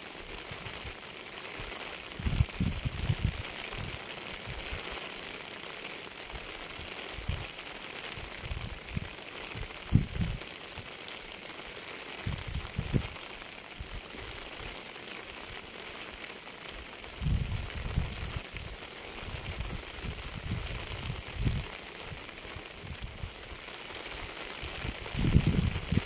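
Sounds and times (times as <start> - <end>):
rain hissing: 0.0 - 26.0.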